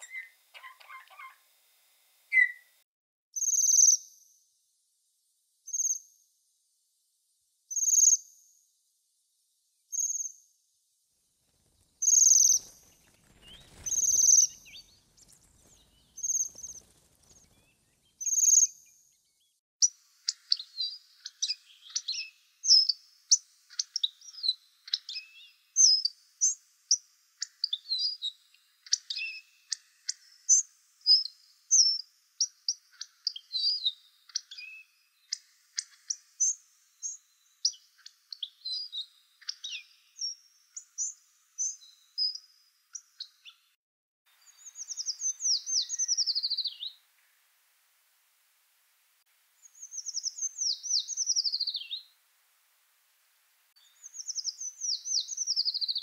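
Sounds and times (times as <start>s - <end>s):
high trilling bird calls: 0.0s - 1.4s, 2.3s - 2.7s, 12.0s - 18.8s, 44.4s - 46.9s, 49.6s - 52.0s.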